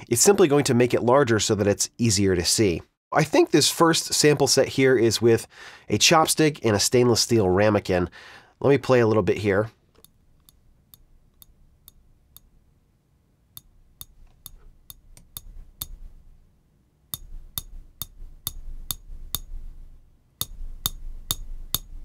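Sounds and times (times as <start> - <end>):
chopstick tapping metal ramekin: 17.2 - 19.5.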